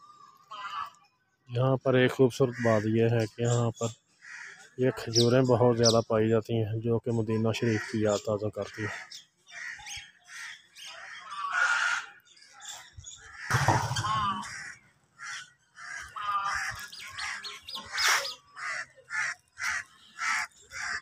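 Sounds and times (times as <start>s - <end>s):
crows cawing: 0.1s - 1.0s, 4.1s - 4.8s, 7.5s - 21.0s
small birds chirping: 2.1s - 21.0s.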